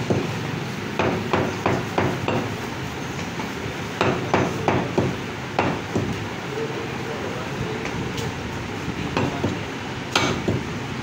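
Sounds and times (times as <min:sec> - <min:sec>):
cleaver chopping meat on wood: 0:00.0 - 0:02.6, 0:04.0 - 0:06.2, 0:09.1 - 0:10.8.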